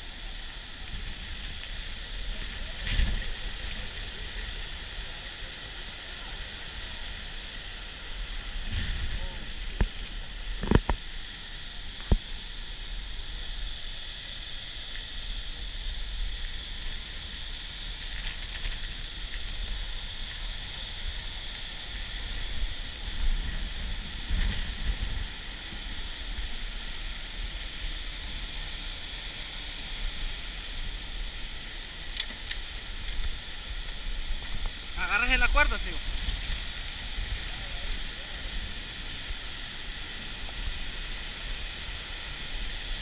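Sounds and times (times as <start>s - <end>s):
wind rumble on microphone: 0.0s - 14.0s, 14.7s - 43.0s
waterfall roaring: 20.0s - 43.0s.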